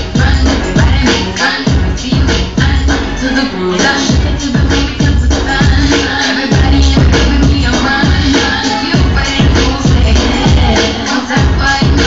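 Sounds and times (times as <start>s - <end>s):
loud dance music: 0.0s - 12.0s.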